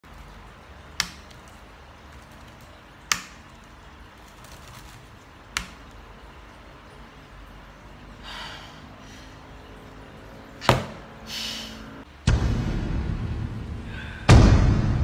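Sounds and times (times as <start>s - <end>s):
soft laptop typing: 1.0s - 6.0s.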